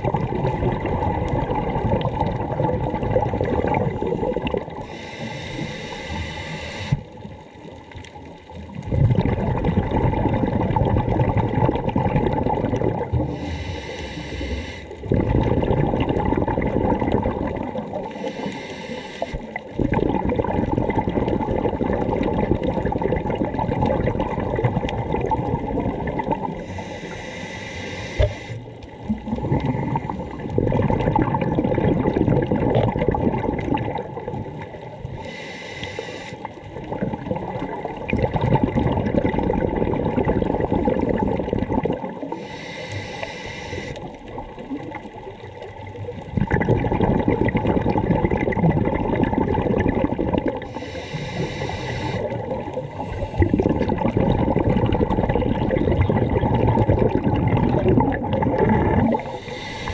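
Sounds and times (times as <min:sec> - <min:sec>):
exhaled bubbles rushing: 0:00.0 - 0:05.0, 0:06.9 - 0:13.5, 0:14.9 - 0:18.6, 0:19.2 - 0:26.8, 0:28.2 - 0:35.2, 0:36.4 - 0:42.4, 0:44.0 - 0:59.9
diver inhaling through regulator: 0:04.8 - 0:07.1, 0:13.2 - 0:15.2, 0:18.0 - 0:19.6, 0:26.5 - 0:28.7, 0:35.1 - 0:36.6, 0:40.4 - 0:44.2, 0:50.6 - 0:54.0, 0:58.8 - 0:59.9.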